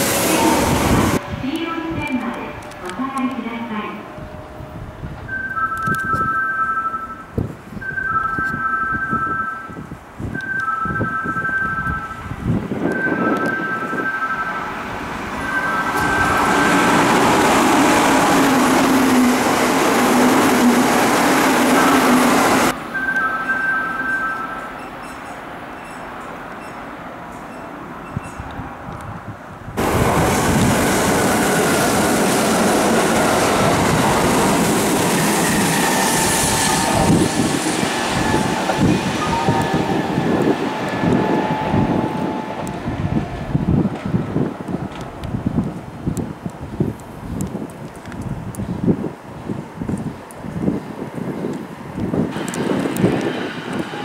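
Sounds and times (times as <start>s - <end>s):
train wheels and motors running: 11.9s - 29.2s, 29.8s - 48.6s, 49.8s - 54.0s
two-tone train horn: 35.3s - 37.5s, 38.2s - 43.2s.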